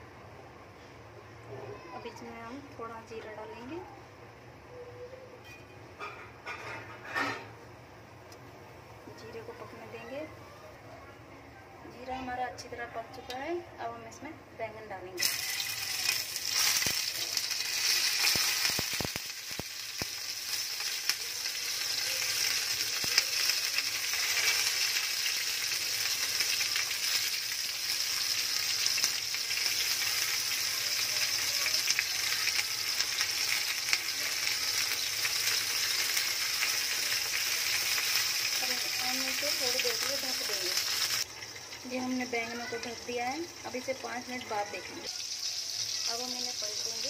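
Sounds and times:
eggplants sizzling in oil: 8.8 - 10.4, 14.8 - 47.0.

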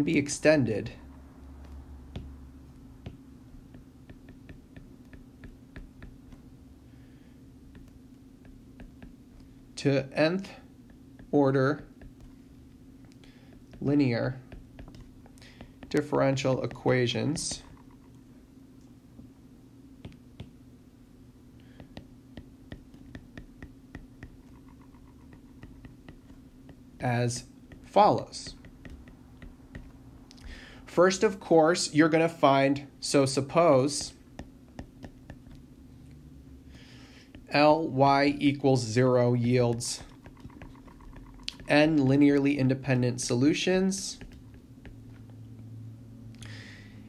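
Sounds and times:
low steady hum: 0.0 - 47.0
stylus tapping on tablet screen: 0.9 - 6.6, 7.6 - 9.6, 10.8 - 18.2, 20.0 - 20.6, 21.6 - 30.7, 33.4 - 37.7, 38.5 - 45.4
stylus clicking on tablet screen: 14.5 - 18.2, 21.8 - 26.8, 27.7 - 30.6, 39.4 - 42.5.

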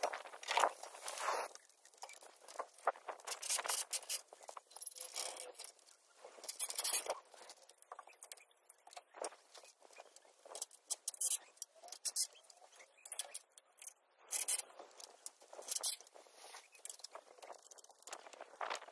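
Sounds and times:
metal tubes scraping on roof tiles: 6.4 - 8.5, 9.7 - 16.0.

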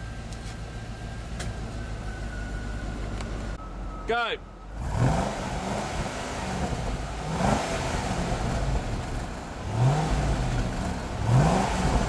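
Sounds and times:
car engine idling: 0.0 - 12.0
engine revving: 4.7 - 12.0.

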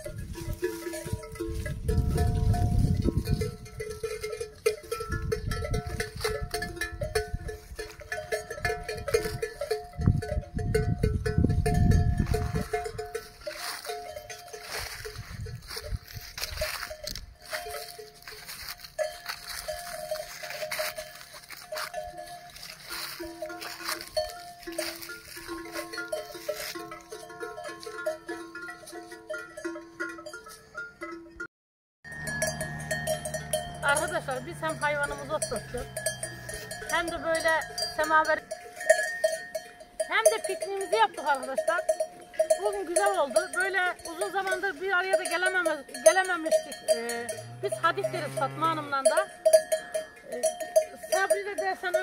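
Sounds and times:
cow bells clanking: 0.0 - 52.0
rustling in brush: 12.2 - 27.2.

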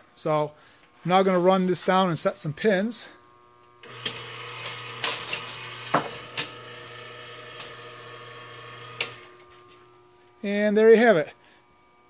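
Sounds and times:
motor humming: 2.4 - 10.4.

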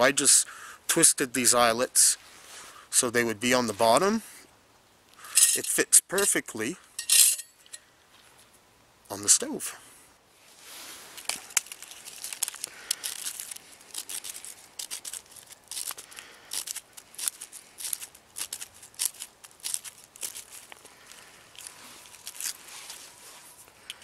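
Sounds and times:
twigs snapping: 11.1 - 23.0
bark crinkling: 11.2 - 23.2.

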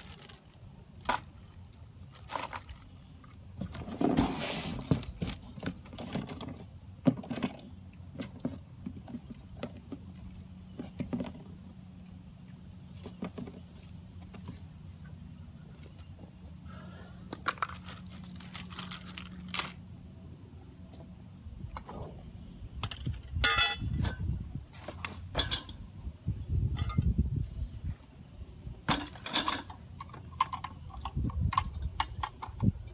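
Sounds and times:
plastic parts clicking and rattling: 17.3 - 19.8.

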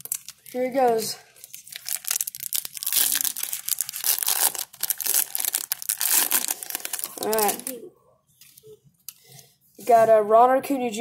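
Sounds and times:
foil wrapper ripping and crinkling: 0.0 - 7.8.

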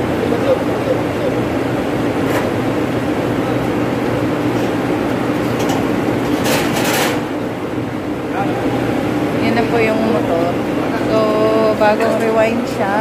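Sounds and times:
machinery droning: 0.0 - 13.0.

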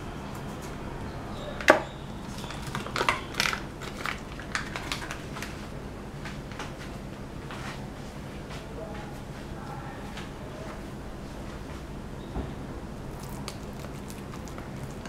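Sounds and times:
plastic packaging crinkling: 2.2 - 5.7, 13.1 - 15.0.

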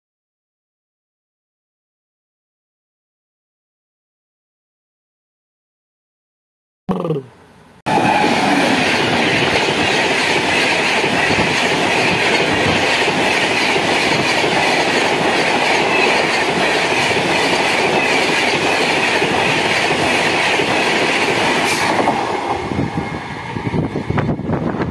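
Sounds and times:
train wheels rushing on rails: 7.9 - 24.9
clickety-clack over rail joints: 8.2 - 23.0.

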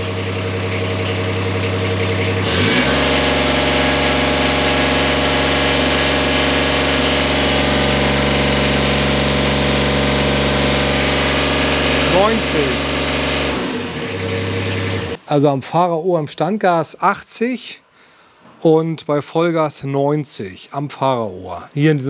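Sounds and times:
diesel engine revving: 0.0 - 15.2.

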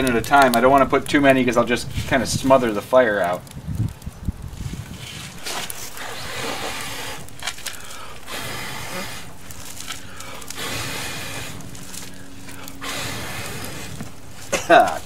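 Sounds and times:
person blowing breathy puffs: 4.6 - 15.0.

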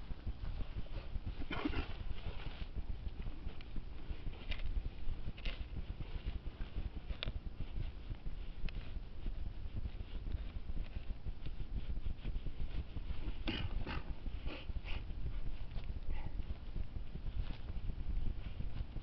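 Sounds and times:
low rumble: 0.0 - 19.0
boots stamping ground: 12.7 - 18.0.

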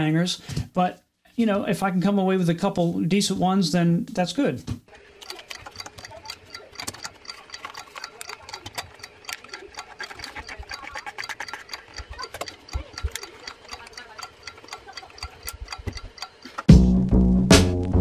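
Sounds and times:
camera clicks and ticks: 5.2 - 16.7.

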